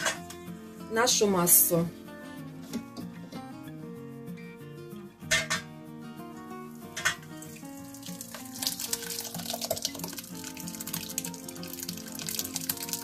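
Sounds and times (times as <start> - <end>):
background music: 0.0 - 13.0
liquid splashing through colander: 6.9 - 13.0.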